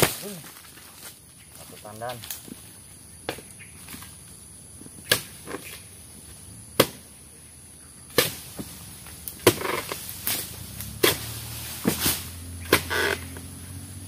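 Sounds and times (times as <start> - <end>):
fronds rustling and crackling: 0.0 - 14.0
blade chopping into stalks: 8.1 - 13.5.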